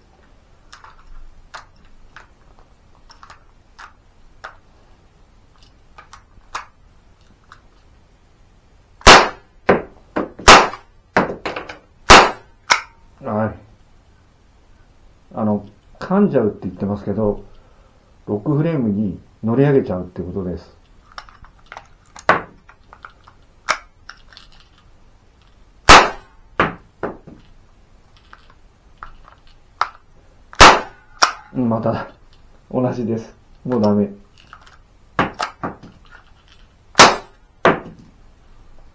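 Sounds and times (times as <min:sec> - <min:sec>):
cap gun shots: 0:09.0 - 0:09.8, 0:10.4 - 0:10.9, 0:12.1 - 0:12.9, 0:25.9 - 0:26.8, 0:30.6 - 0:31.5, 0:37.0 - 0:37.9.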